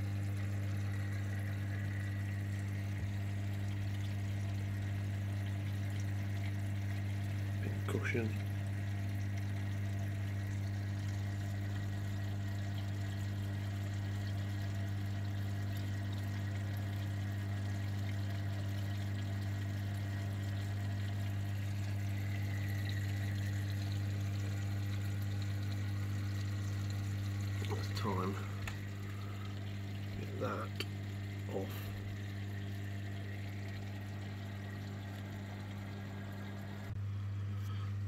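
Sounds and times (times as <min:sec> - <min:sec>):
circulating water wash: 0:00.0 - 0:37.0
aquarium pumps humming: 0:00.0 - 0:38.0.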